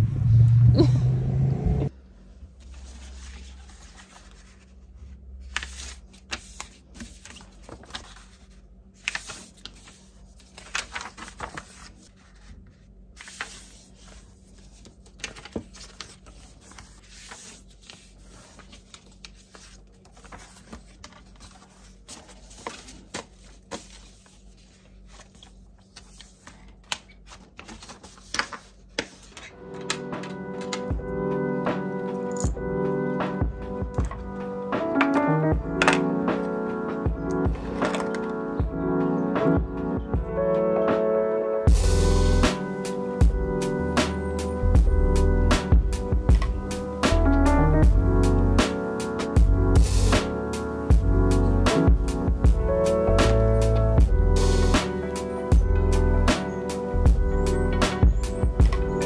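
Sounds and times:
paper rustling and crinkling: 2.6 - 30.8, 37.5 - 38.4.

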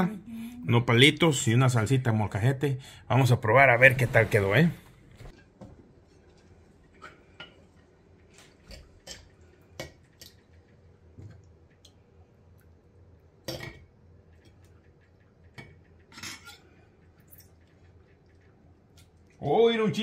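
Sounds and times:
cutlery clinking on plates: 15.6 - 16.7.

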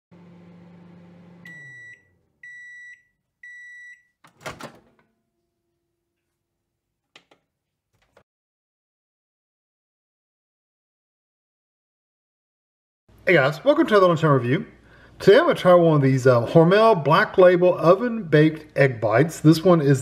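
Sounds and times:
microwave oven humming: 0.1 - 2.8
high microwave beeps: 1.4 - 4.2
microwave door popping open: 4.2 - 5.1.

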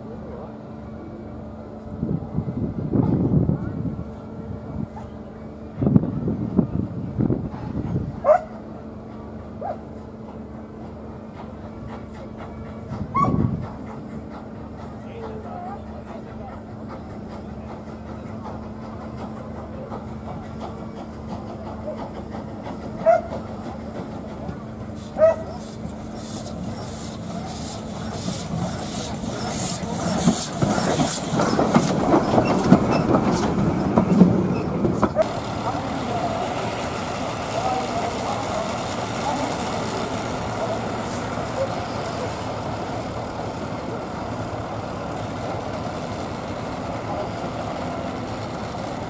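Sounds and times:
steam locomotive chuffing: 4.1 - 49.0
train wheels clanking on track: 7.5 - 49.0
dog barking: 8.2 - 8.5, 25.2 - 25.5.

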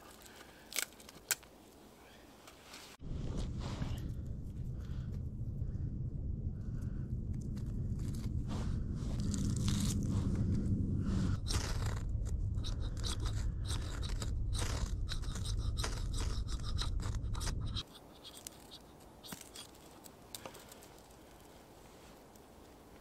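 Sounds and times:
steady low rumble: 3.0 - 17.8.

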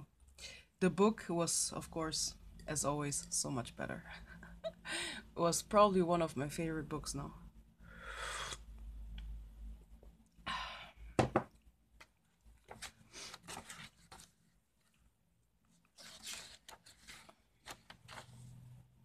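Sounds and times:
paper pages turning: 12.6 - 15.0, 15.7 - 18.7.

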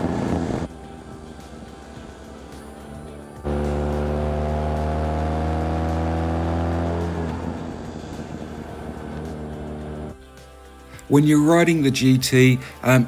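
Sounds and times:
wind and road noise: 0.0 - 2.6, 3.5 - 10.1
motorcycle engine pulling: 3.5 - 8.0.

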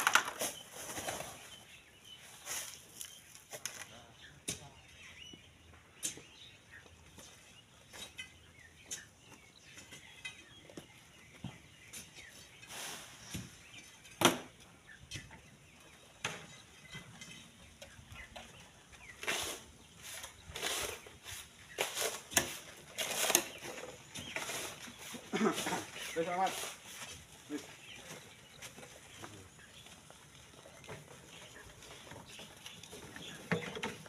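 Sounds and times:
sand and gravel sliding: 0.0 - 4.0, 11.2 - 14.0, 18.6 - 34.0.

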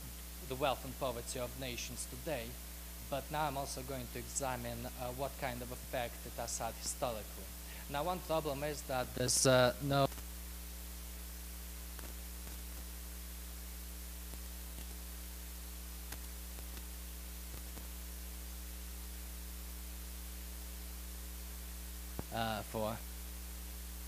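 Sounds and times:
constant hiss: 0.0 - 24.0
electrical mains hum: 0.0 - 24.0
faint ticks: 17.5 - 17.9.

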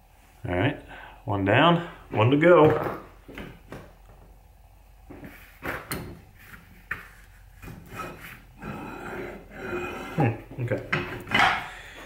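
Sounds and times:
metal vise knocks and clunks: 10.6 - 11.7.

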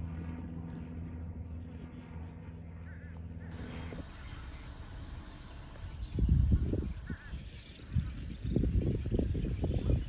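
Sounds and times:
steady hiss and low rumble: 0.8 - 10.0
faint bird calls: 2.3 - 10.0.

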